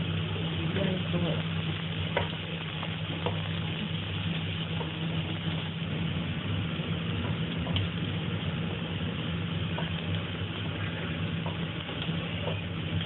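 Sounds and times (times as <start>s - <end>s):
ginger sizzling in oil: 0.0s - 13.0s
low mechanical hum: 0.0s - 13.0s
wooden spatula tapping and scraping: 3.1s - 3.5s, 11.4s - 12.7s.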